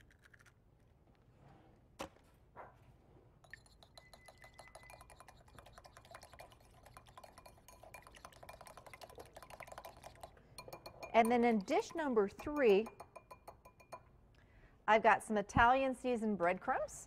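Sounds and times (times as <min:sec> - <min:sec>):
whisk beating egg in bowl: 0:03.4 - 0:14.0.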